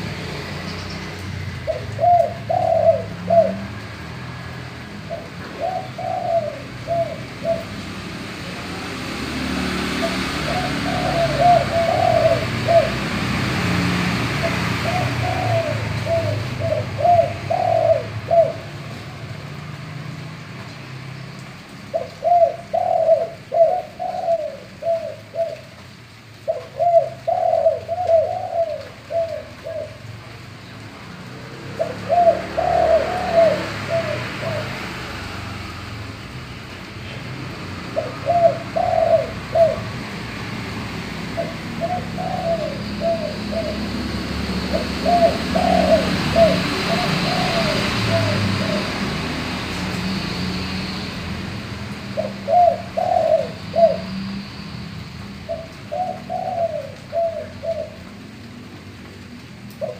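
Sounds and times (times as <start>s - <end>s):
dove cooing: 1.6s - 3.7s, 5.0s - 7.8s, 9.8s - 13.2s, 14.3s - 18.7s, 21.9s - 25.7s, 26.4s - 30.1s, 31.7s - 35.1s, 37.8s - 40.1s, 41.2s - 49.3s, 52.2s - 54.2s, 55.5s - 58.2s.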